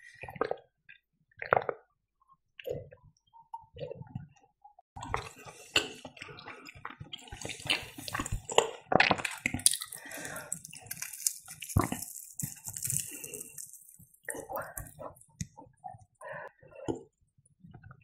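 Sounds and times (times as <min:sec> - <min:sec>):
crackles from handling fried food: 0:09.2 - 0:15.5.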